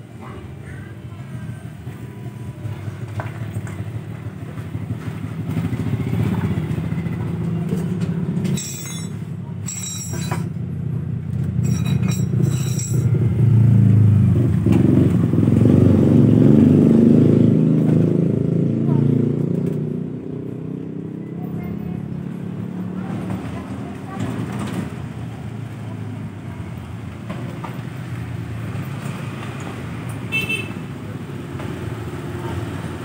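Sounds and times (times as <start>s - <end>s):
motorcycle engine running: 1.7s - 8.4s.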